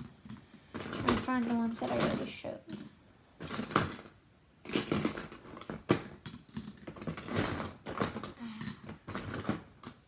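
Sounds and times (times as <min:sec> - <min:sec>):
fidget spinners clattering: 0:00.0 - 0:02.9.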